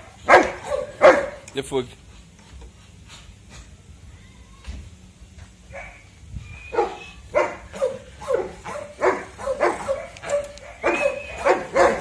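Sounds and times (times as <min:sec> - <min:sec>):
dog barking sharply: 0:00.3 - 0:01.4, 0:06.8 - 0:12.0.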